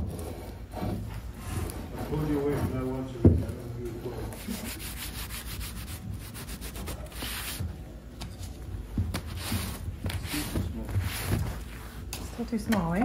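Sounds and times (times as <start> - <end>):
rubbing on wooden tabletop: 4.1 - 7.8, 9.1 - 12.1.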